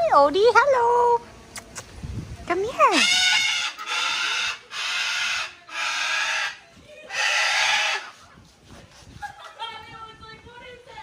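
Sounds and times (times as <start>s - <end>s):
macaw squawking: 2.9s - 8.2s.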